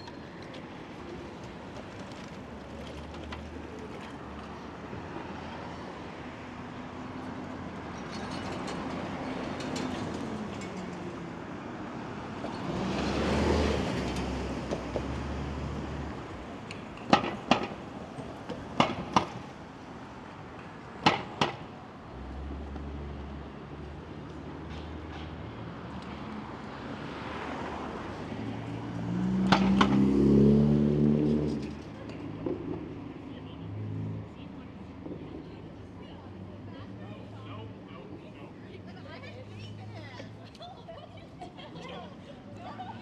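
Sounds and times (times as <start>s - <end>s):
street traffic: 0.0s - 43.0s
vehicle passing: 25.6s - 31.9s.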